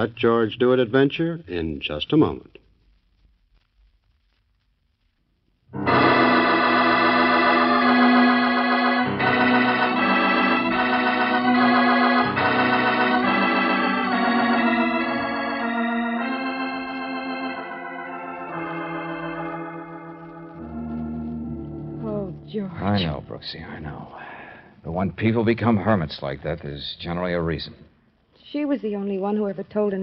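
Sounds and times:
organ chords: 5.7s - 24.0s.

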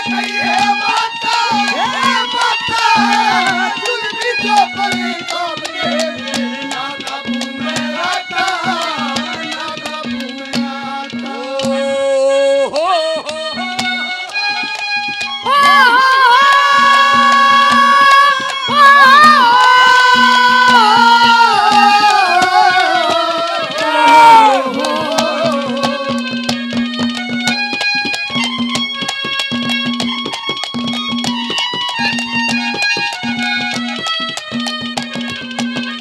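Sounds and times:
hand drum rapid strokes: 0.0s - 11.9s, 13.3s - 36.0s
boy singing long notes: 0.0s - 13.8s, 15.3s - 26.5s
harmonium held notes: 0.0s - 36.0s.

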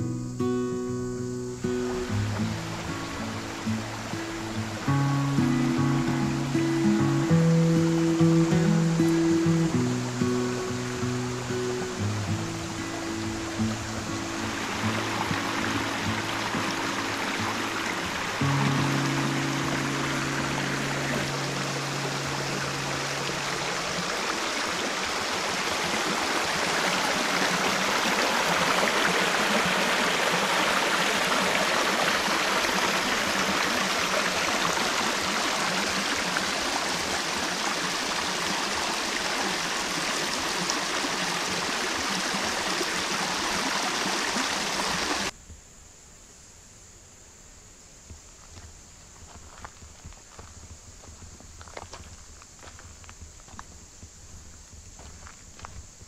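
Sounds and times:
rocky creek water rushing: 1.5s - 45.4s.

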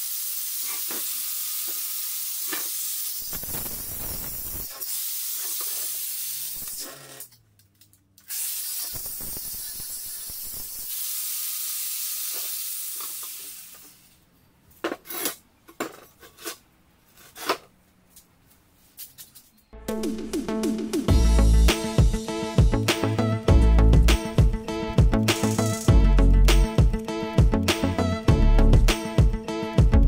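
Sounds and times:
angle grinder sanding metal: 0.0s - 7.1s, 8.3s - 14.1s, 25.2s - 25.9s.

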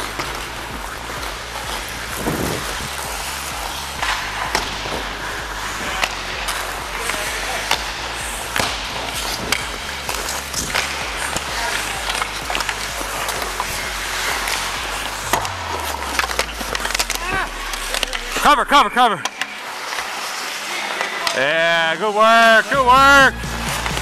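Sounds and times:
skate blades scraping on ice: 0.0s - 18.6s, 19.2s - 22.7s
hockey sticks and puck clacking: 0.0s - 24.0s.

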